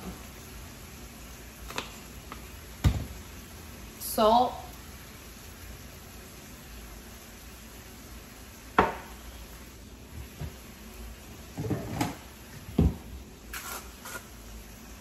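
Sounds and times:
containers knocking on a countertop: 2.8s - 3.2s, 8.8s - 9.1s.

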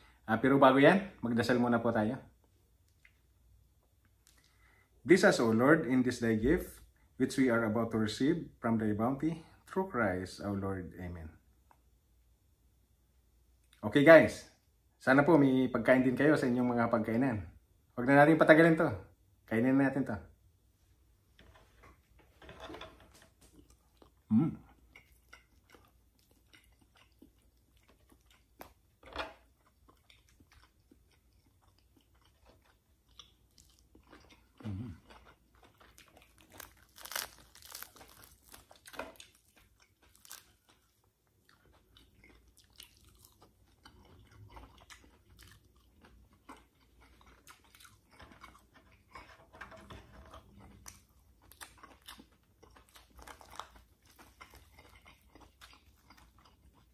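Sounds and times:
person chewing and crunching food: 21.4s - 56.9s.

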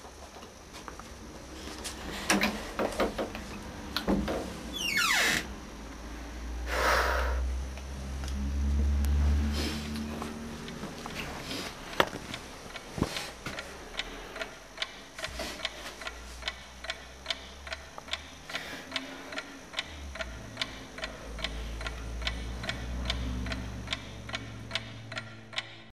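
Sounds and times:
clock ticking: 12.1s - 25.9s.

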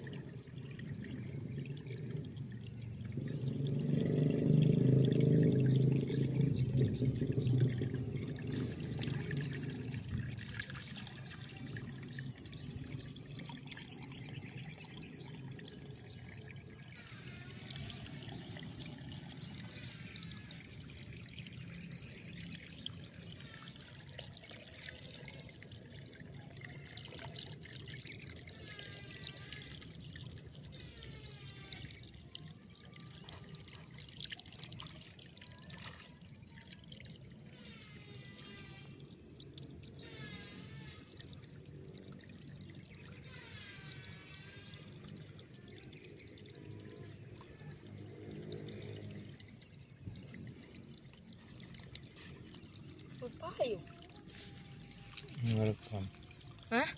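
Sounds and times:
water trickling: 0.0s - 56.9s.

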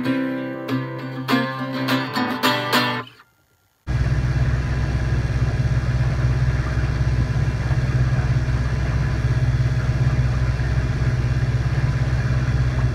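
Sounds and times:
outboard motor running: 3.9s - 12.9s.

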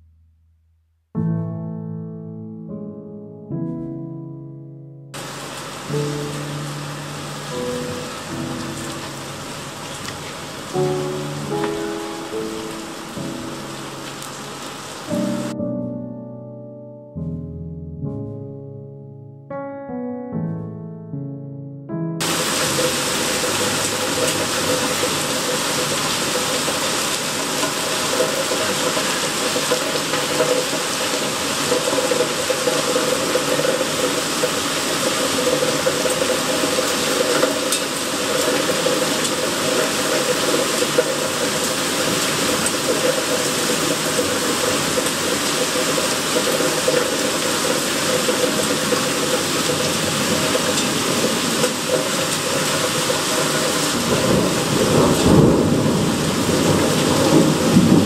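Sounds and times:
heavy rain pouring: 5.2s - 15.6s, 22.2s - 58.0s.

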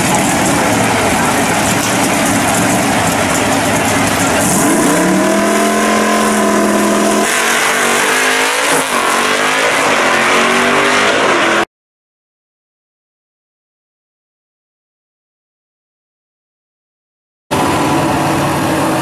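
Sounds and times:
drag car engines revving: 0.0s - 11.7s, 17.5s - 19.0s.

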